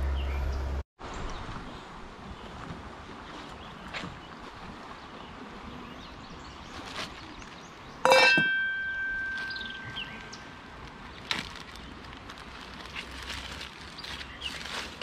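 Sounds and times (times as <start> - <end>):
ringing metallic clink: 8.1 - 10.5.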